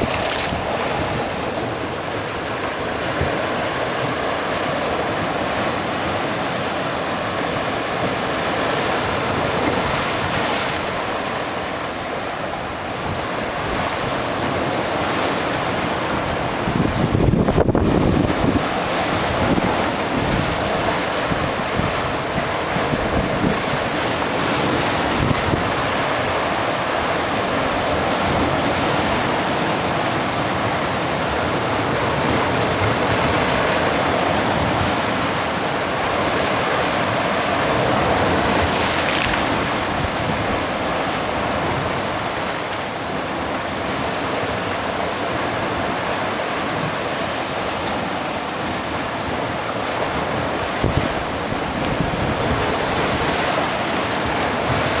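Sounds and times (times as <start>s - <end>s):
sea surf breaking on stone: 0.0s - 55.0s
wind buffeting microphone: 16.0s - 26.6s, 49.5s - 55.0s.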